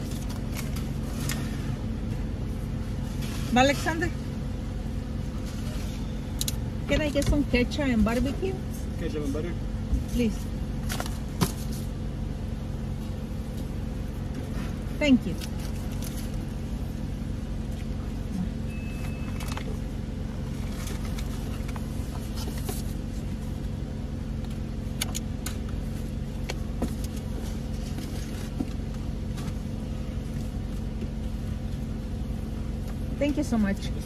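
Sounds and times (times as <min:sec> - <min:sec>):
car engine idling: 0:00.0 - 0:34.0.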